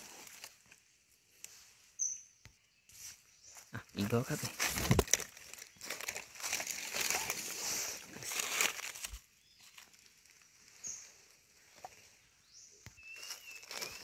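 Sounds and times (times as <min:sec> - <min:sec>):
footsteps crunching dry leaves: 0:03.0 - 0:14.0.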